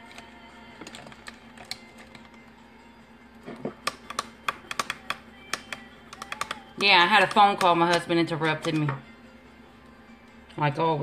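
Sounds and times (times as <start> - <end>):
sharp clicks and taps: 3.8 - 9.0.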